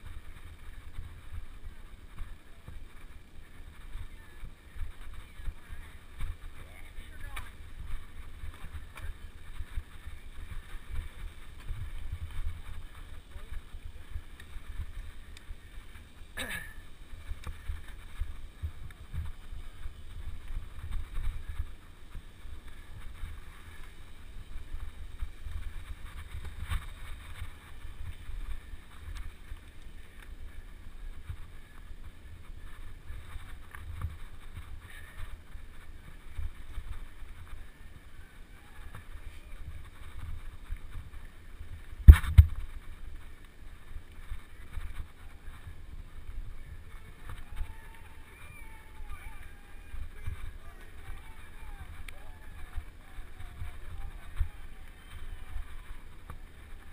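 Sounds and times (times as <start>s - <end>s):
bike rattling over bumps: 0.0s - 56.9s
wind and trail vibration rumble: 0.0s - 56.9s.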